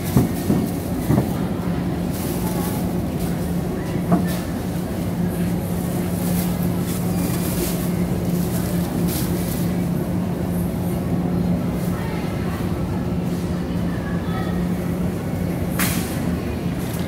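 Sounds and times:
low hum and rumble: 0.0s - 17.0s.

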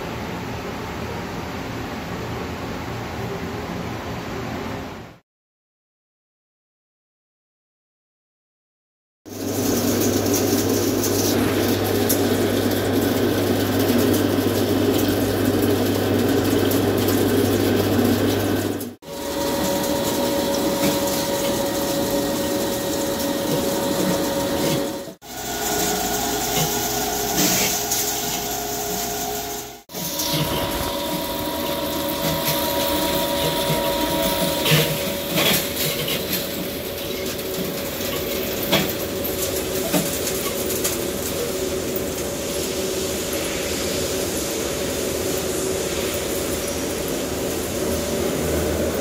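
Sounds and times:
lathe cutting metal hum and whine: 19.0s - 39.2s.

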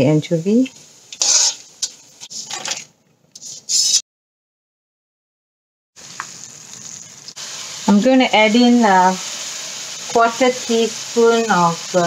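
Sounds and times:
hot oil sizzling: 0.4s - 2.8s, 6.0s - 12.0s
metal spatula scraping a wok: 1.1s - 2.8s, 3.4s - 4.0s.

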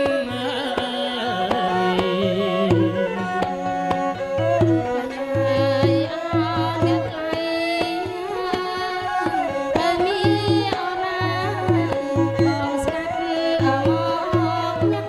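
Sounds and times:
person singing: 0.0s - 4.1s
drums and stringed instruments: 0.0s - 15.0s.

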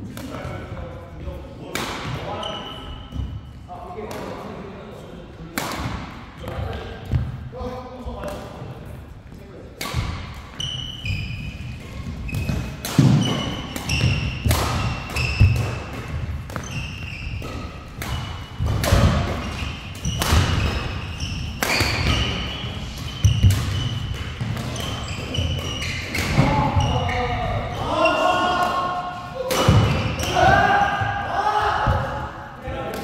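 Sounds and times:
racket hitting shuttlecock: 5.5s - 7.3s, 9.8s - 10.8s, 11.7s - 26.5s
shoes squeaking on court: 10.5s - 27.5s.

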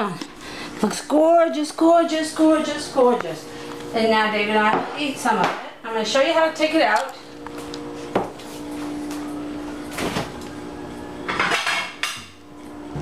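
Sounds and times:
cookware clattering: 11.3s - 12.3s.

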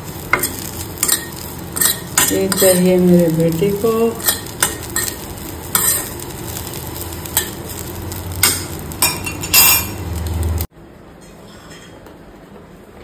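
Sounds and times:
light sizzle: 0.0s - 10.7s
spoon scraping a metal pan: 0.3s - 3.0s, 4.2s - 6.2s.

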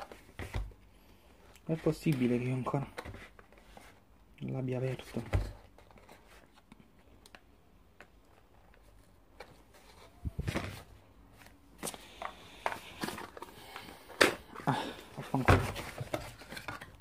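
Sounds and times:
knocks and rustling of cardboard: 0.0s - 0.8s, 9.4s - 11.0s, 15.2s - 16.9s.

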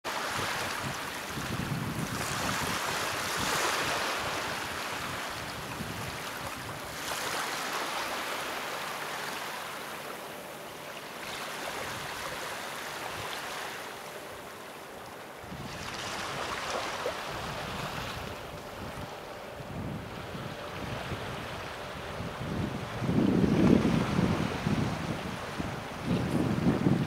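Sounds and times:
small waves washing onto sand: 0.1s - 10.3s, 15.5s - 19.3s.

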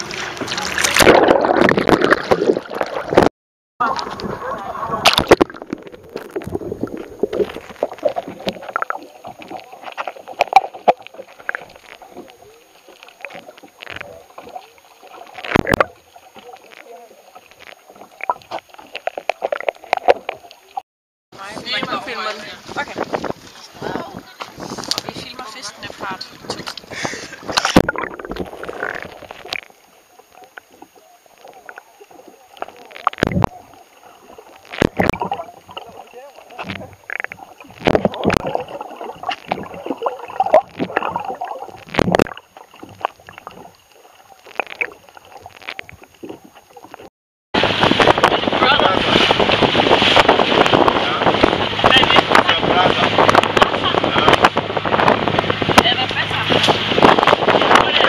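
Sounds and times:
loud splash into water: 0.0s - 9.6s, 47.6s - 58.0s
muffled underwater sloshing and bubbling: 0.0s - 20.8s, 21.4s - 58.0s.

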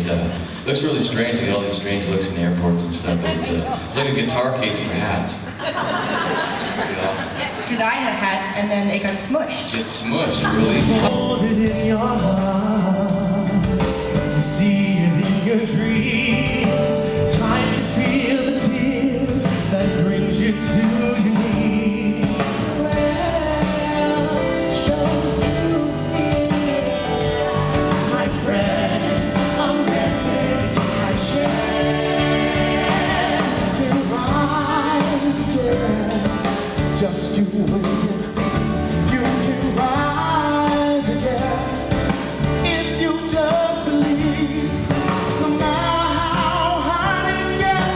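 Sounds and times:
keyboard: 0.0s - 47.9s
acoustic guitar: 10.1s - 47.9s
man singing lead vocals: 10.4s - 47.9s
women backing singers: 22.3s - 35.8s.

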